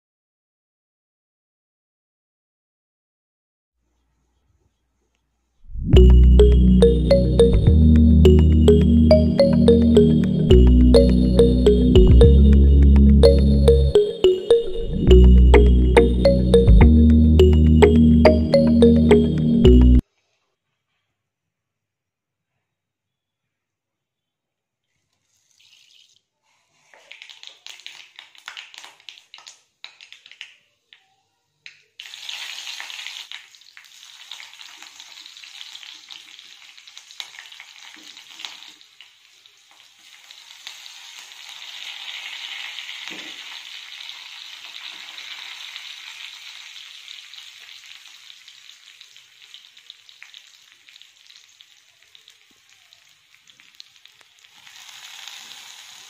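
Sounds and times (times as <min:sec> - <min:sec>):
sharp crackles of frying: 0:25.2 - 0:31.0, 0:31.6 - 0:56.0
onions frying in oil: 0:26.8 - 0:30.4, 0:32.0 - 0:56.0.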